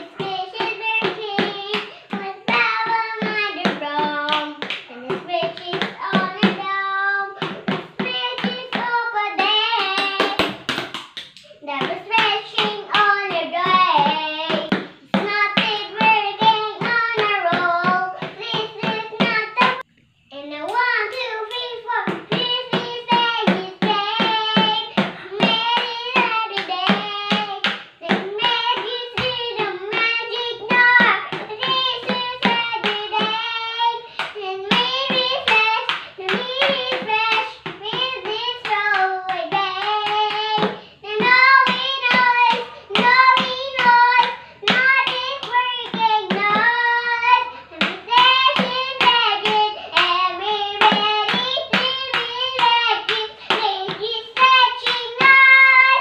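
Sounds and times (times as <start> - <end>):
child singing: 0.0 - 56.0
makeshift drum beating: 34.6 - 56.0.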